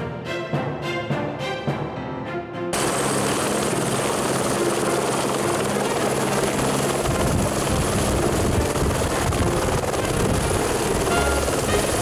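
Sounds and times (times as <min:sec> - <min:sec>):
helicopter rotor and engine: 0:02.7 - 0:12.0.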